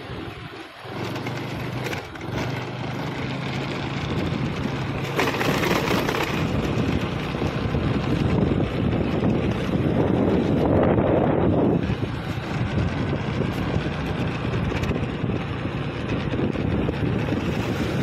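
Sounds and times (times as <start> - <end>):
motorcycle engine running: 0.0 - 18.0
wind rushing over microphone: 3.6 - 18.0.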